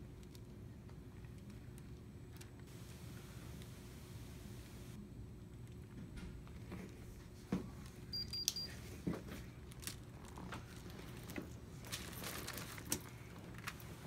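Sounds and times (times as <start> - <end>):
electronic thermometer beeping: 8.1 - 8.8.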